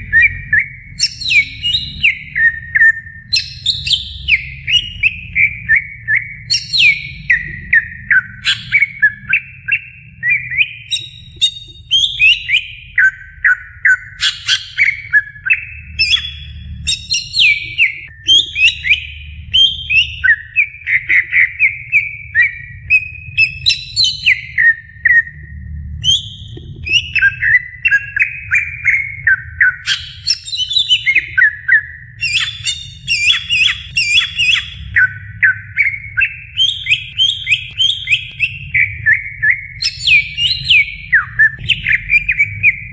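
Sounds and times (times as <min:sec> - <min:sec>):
bird singing: 0:00.0 - 0:42.9.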